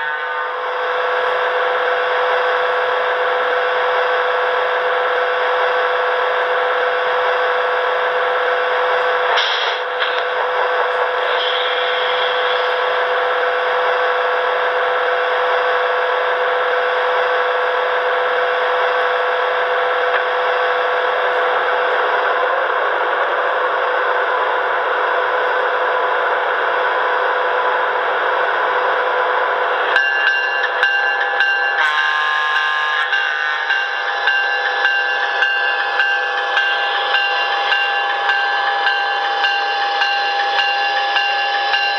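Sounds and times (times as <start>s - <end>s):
electric locomotive running hum: 0.0s - 41.9s.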